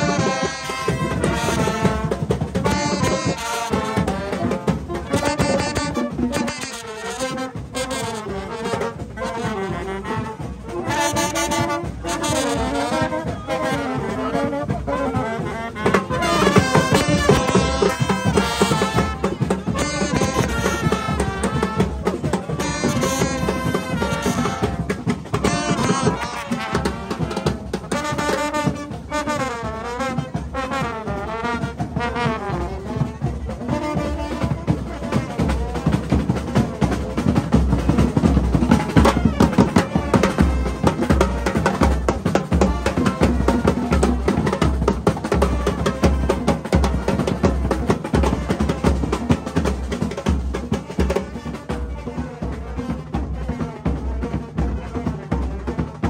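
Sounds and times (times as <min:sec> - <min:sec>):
brass band melody: 0:00.0 - 0:56.0
drumming: 0:00.0 - 0:56.0.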